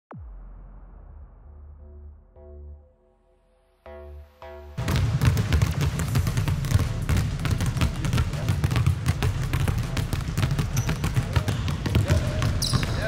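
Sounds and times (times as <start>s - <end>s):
basketballs bouncing on court: 4.8s - 13.0s.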